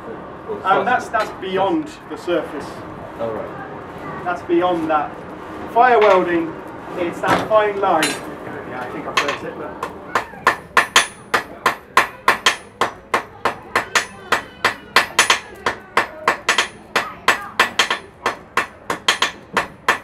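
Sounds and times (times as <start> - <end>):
hammer striking iron on anvil: 9.2 - 20.0.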